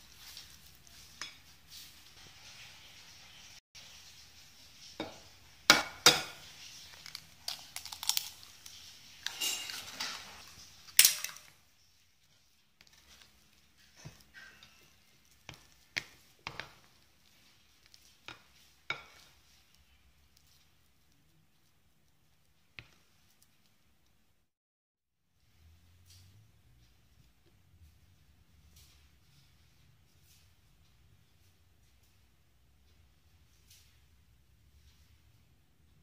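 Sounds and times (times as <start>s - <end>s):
spatula scraping glass bowl: 8.8s - 10.6s, 12.8s - 17.5s.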